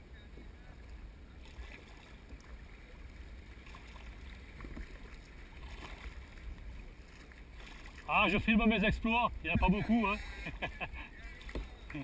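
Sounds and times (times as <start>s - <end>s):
paddle splashing in water: 1.4s - 8.6s, 11.2s - 12.0s.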